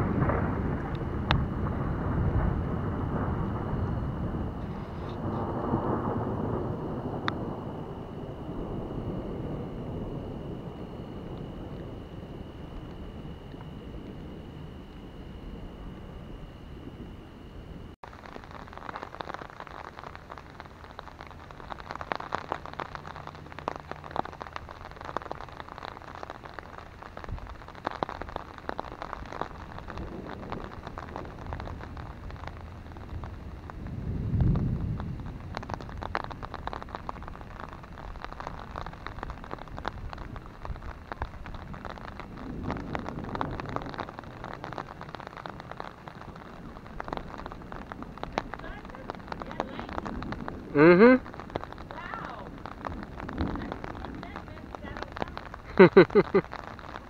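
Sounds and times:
rain on an umbrella: 0.0s - 57.0s
thunder rumbling: 0.0s - 57.0s.

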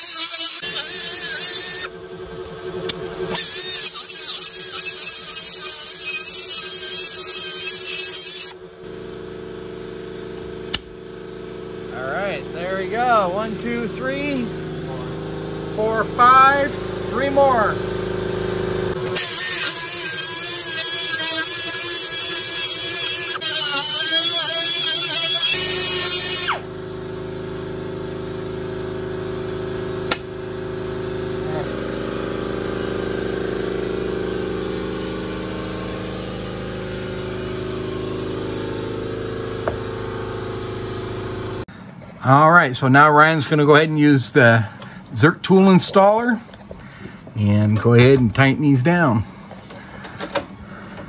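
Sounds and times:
die grinder grinding steel: 0.0s - 8.6s, 18.9s - 26.8s
machine hum: 0.0s - 51.0s.

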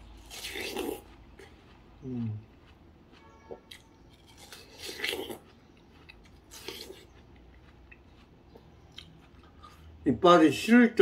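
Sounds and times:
chewing watermelon wet crunches: 0.0s - 10.7s.

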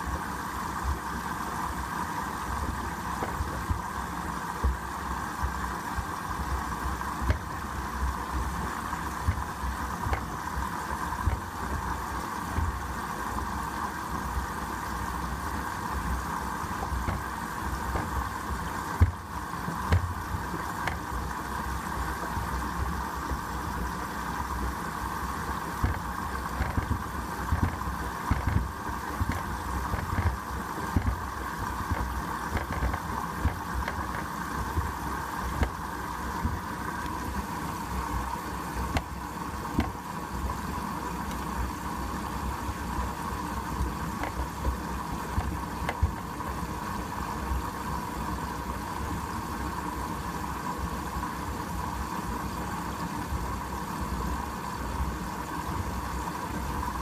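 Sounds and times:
washing machine motor hum: 0.0s - 57.0s.

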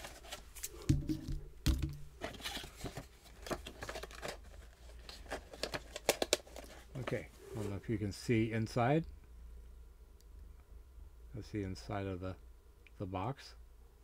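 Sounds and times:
cardboard packaging crinkling and tearing: 0.0s - 0.8s, 2.2s - 6.9s.

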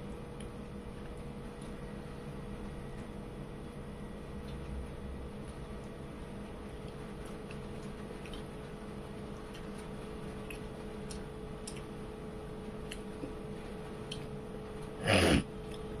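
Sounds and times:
chewing clicks and smacks: 0.0s - 1.8s, 5.7s - 15.0s, 15.6s - 16.0s
steady hum: 0.0s - 16.0s.

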